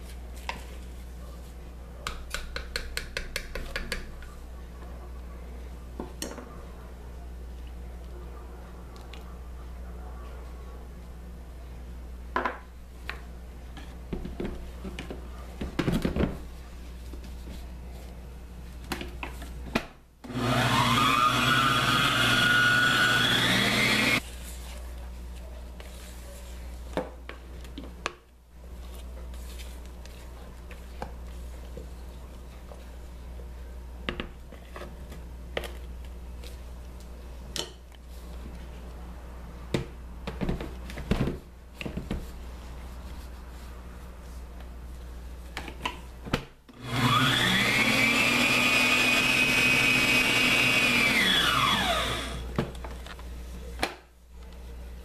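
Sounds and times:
stand mixer motor whining: 0:20.3 - 0:24.2, 0:46.8 - 0:52.4.

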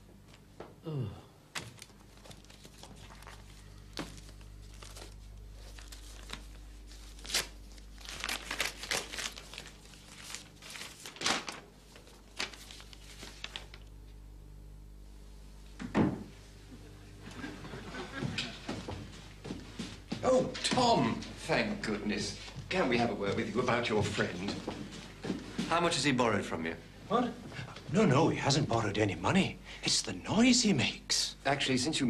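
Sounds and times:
steady low hum: 0:00.0 - 0:32.0
paper rustling and crinkling: 0:01.6 - 0:14.0.

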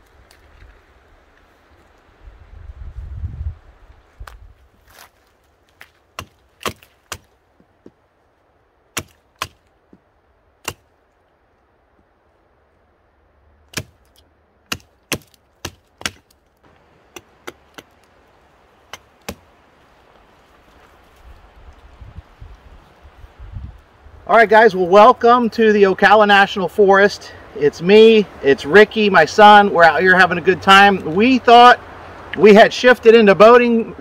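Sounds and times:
tool chopping wood: 0:06.2 - 0:08.0, 0:09.0 - 0:09.6, 0:10.6 - 0:10.8, 0:13.7 - 0:16.4, 0:17.1 - 0:18.0, 0:18.9 - 0:19.4.

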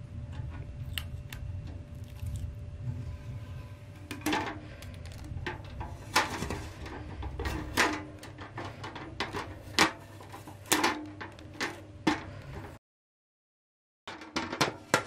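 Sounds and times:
fan louvres clicking and tapping: 0:04.0 - 0:12.8.

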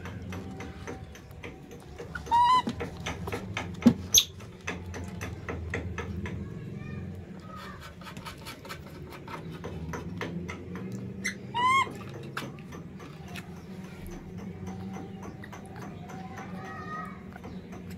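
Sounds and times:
baby monkey squealing: 0:02.2 - 0:02.8, 0:04.1 - 0:04.3, 0:11.2 - 0:12.1.

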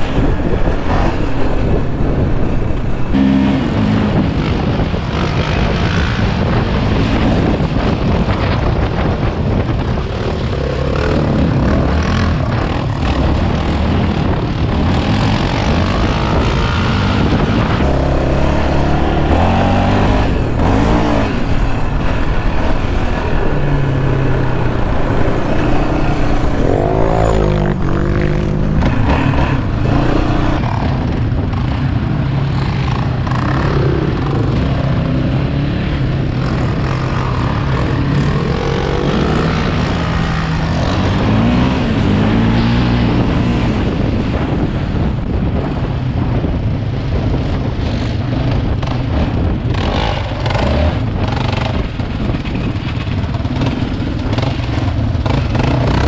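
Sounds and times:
atv engine revving: 0:00.0 - 0:07.5, 0:10.5 - 0:31.8, 0:32.6 - 0:43.8, 0:48.3 - 0:56.0
wind on microphone: 0:00.0 - 0:56.0.

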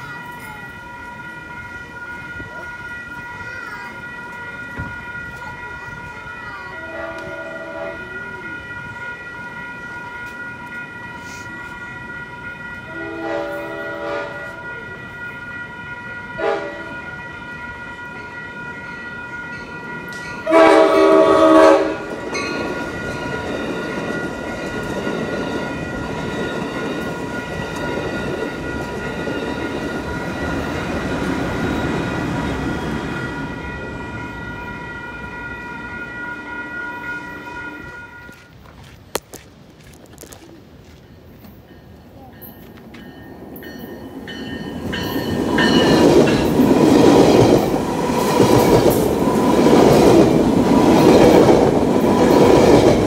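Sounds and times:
crossing warning bell ringing: 0:00.0 - 0:38.6, 0:40.9 - 0:53.0
train rumble and wheel noise: 0:00.0 - 0:53.0
train air horn blasts: 0:06.7 - 0:18.8, 0:20.4 - 0:22.2, 0:33.1 - 0:38.5.

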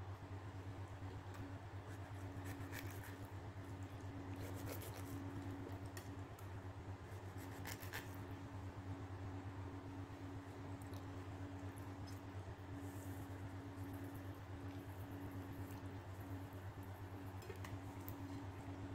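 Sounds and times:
steady low hum: 0:00.0 - 0:18.9
knife scraping fish scales: 0:01.9 - 0:03.2, 0:04.4 - 0:05.2, 0:07.4 - 0:08.2.

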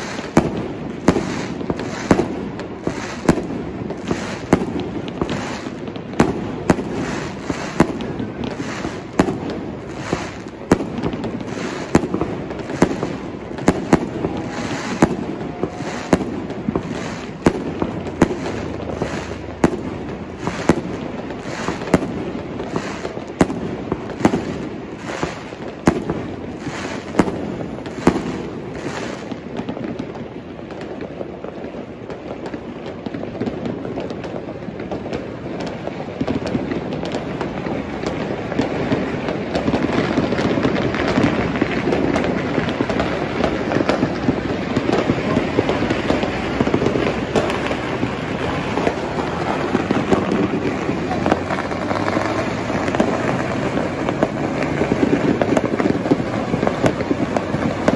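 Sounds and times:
fireworks bangs: 0:00.0 - 0:57.9
background rumble: 0:41.4 - 0:57.9.

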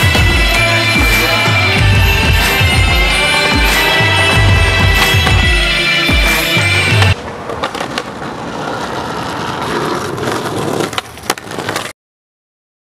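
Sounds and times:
background music: 0:00.0 - 0:07.2
skateboard wheels rolling on concrete: 0:00.0 - 0:12.0
skateboard clacks: 0:07.0 - 0:11.9.

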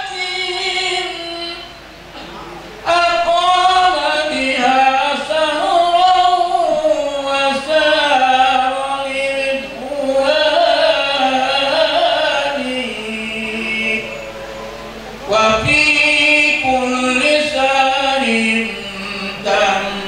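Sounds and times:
person chanting unaccompanied: 0:00.0 - 0:01.8, 0:02.8 - 0:20.0.

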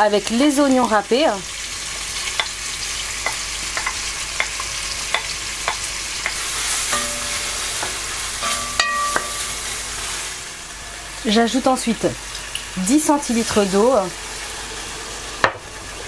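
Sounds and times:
food sizzling in butter: 0:00.0 - 0:16.0
utensil knocking against pot: 0:03.2 - 0:09.4
short metallic rings: 0:06.9 - 0:09.6.

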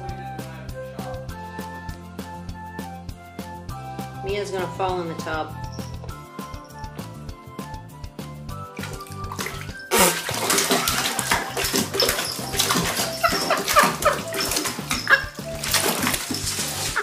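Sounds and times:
background music: 0:00.0 - 0:17.0
cat splashing in water: 0:08.7 - 0:17.0.

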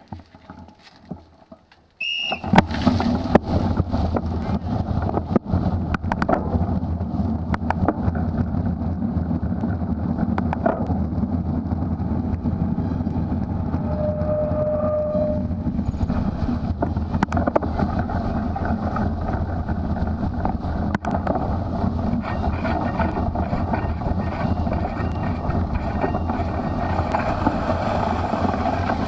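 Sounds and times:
bike rattling over rough ground: 0:00.0 - 0:14.3, 0:15.4 - 0:29.0
wind buffeting microphone: 0:02.4 - 0:29.0
short high beep: 0:13.8 - 0:15.5.

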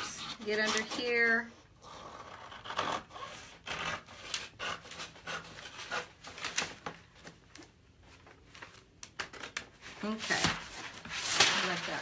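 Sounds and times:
scissors snipping paper: 0:00.0 - 0:01.4, 0:02.2 - 0:06.8
paper rustling: 0:05.0 - 0:12.0.

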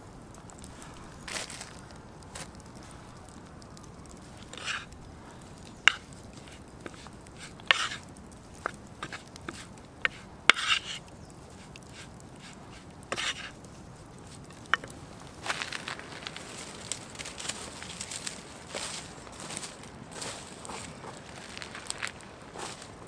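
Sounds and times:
meat being coated in flour: 0:00.5 - 0:14.9
short rustling scrapes: 0:04.5 - 0:04.9, 0:09.0 - 0:13.6.

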